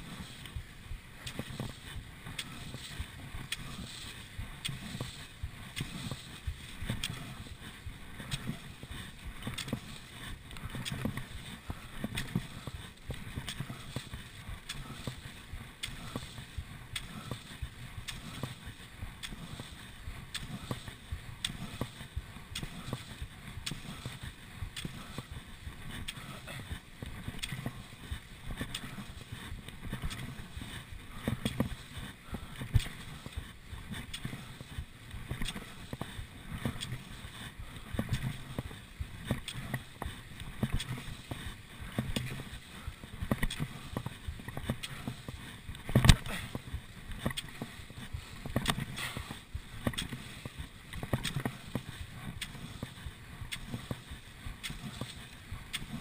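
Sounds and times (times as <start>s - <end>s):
skis sliding in tracks: 0.0s - 56.0s
knocks of skis and poles: 1.2s - 56.0s.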